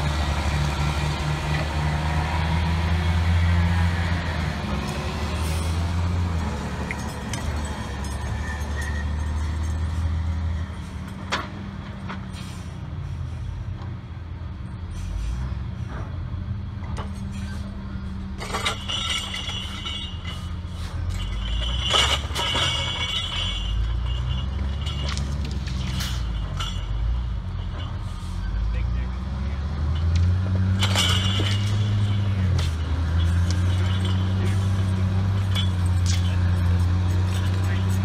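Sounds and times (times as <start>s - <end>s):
metallic knocks and clinks: 6.4s - 10.4s, 18.4s - 28.3s, 29.7s - 38.0s.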